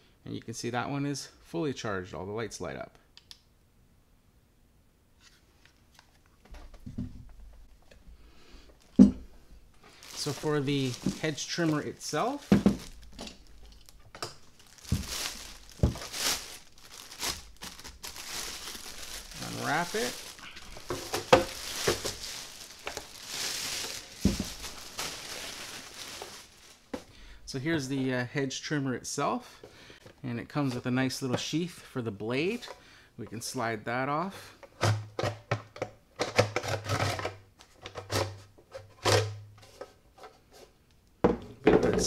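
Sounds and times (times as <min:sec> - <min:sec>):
plastic bag crinkling: 0:08.6 - 0:09.1, 0:09.7 - 0:27.1.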